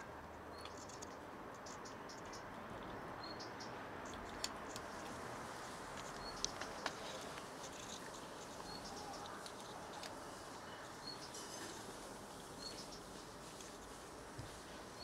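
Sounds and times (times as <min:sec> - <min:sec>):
steady hiss: 0:04.7 - 0:15.0
cats crunching dry kibble: 0:06.0 - 0:10.2.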